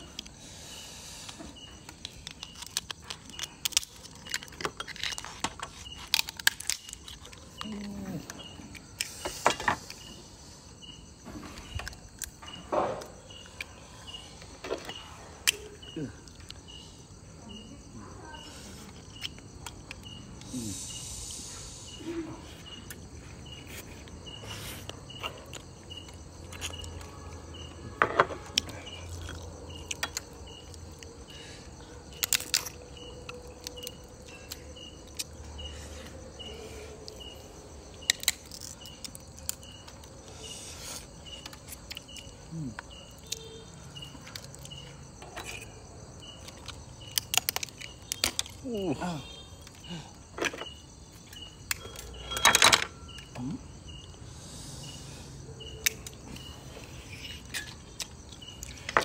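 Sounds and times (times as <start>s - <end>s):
insect chirping: 0.0s - 59.0s
crab shells cracking: 1.9s - 7.8s, 28.6s - 31.2s, 32.1s - 35.3s, 38.0s - 40.1s, 46.3s - 48.6s.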